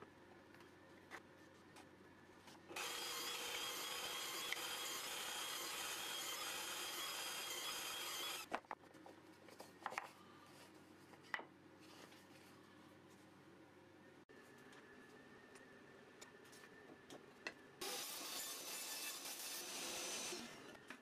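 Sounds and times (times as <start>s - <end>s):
cordless drill boring particleboard: 2.8s - 8.5s.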